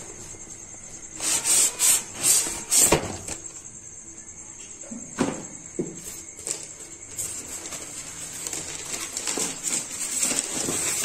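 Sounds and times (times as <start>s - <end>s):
plastic wrapping and foam rustling: 6.0s - 11.0s.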